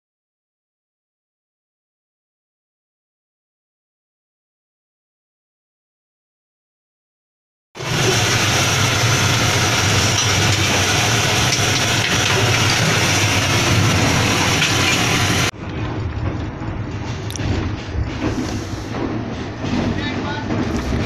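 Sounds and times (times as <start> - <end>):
diesel generator humming: 7.8 - 21.0
train running rumble: 7.8 - 21.0.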